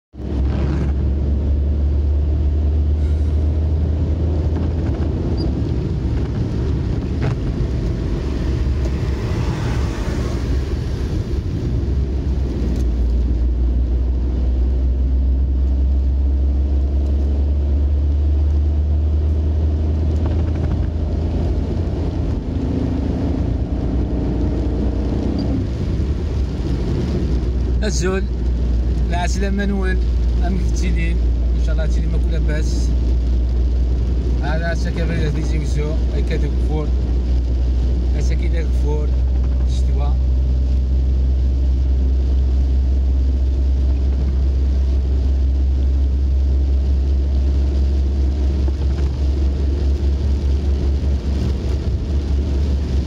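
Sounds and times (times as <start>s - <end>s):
car interior rumble: 0.1s - 53.0s
tyres hissing on wet road: 7.5s - 13.3s.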